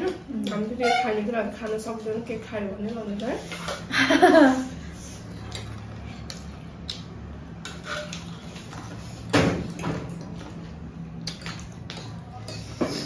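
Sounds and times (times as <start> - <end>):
cutlery scraping ceramic plates: 7.6 - 8.6, 12.4 - 13.0.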